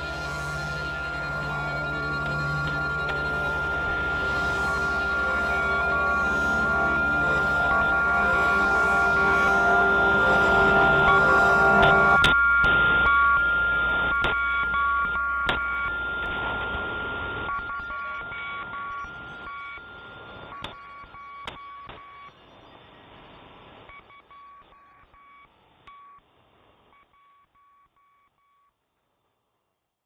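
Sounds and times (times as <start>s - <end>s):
steady high tone: 0.0s - 14.1s
electronic beeping: 0.0s - 22.7s.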